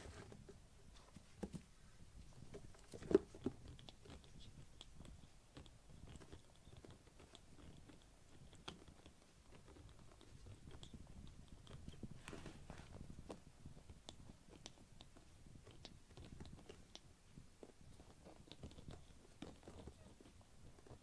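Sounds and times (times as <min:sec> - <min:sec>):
kittens' paws tapping and scrabbling: 0:00.0 - 0:21.0.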